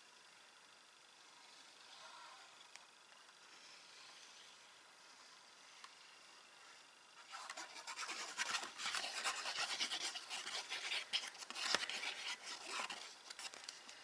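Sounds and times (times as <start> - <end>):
glue rubbing on paper: 7.2 - 13.5.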